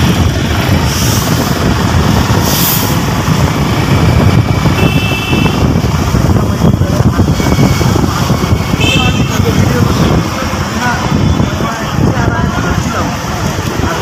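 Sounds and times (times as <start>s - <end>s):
vehicle road and wind noise: 0.0s - 14.0s
high-pitched horn tone: 4.7s - 5.8s, 7.3s - 9.6s.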